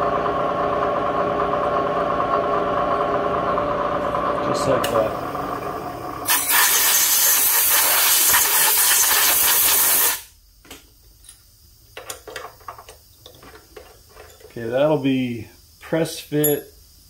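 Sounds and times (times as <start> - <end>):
compressed air blow gun hissing: 6.2 - 10.3.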